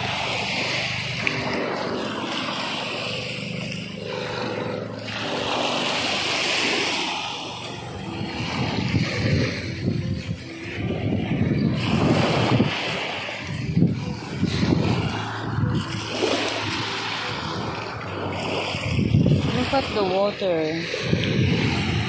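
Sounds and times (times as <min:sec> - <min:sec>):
sea hissing: 0:00.0 - 0:10.6, 0:11.6 - 0:22.0
motor droning: 0:00.0 - 0:22.0
wind buffeting microphone: 0:00.0 - 0:22.0.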